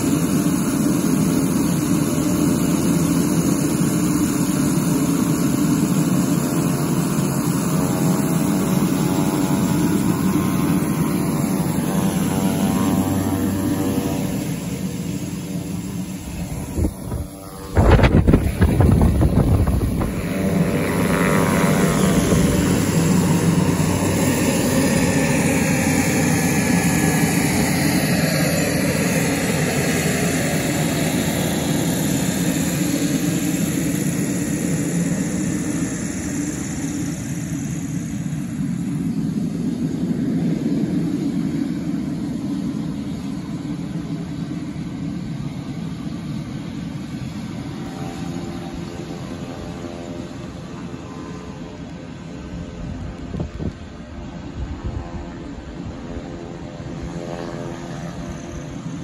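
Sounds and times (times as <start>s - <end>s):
propeller plane engines droning: 0.0s - 59.0s
wind rush on microphone: 7.4s - 36.0s, 52.4s - 57.2s.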